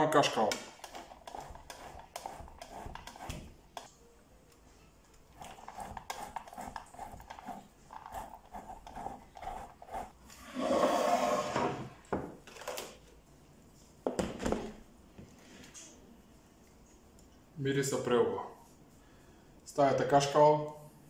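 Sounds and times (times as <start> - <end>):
cheese grating on box grater: 0.8 - 3.5, 5.4 - 10.2.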